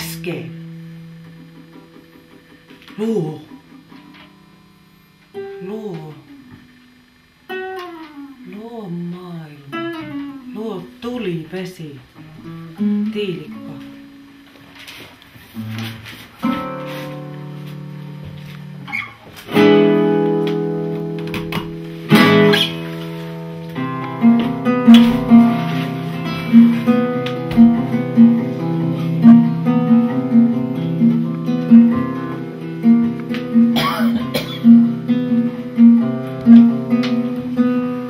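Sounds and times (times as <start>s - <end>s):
acoustic guitar: 0.0s - 38.0s.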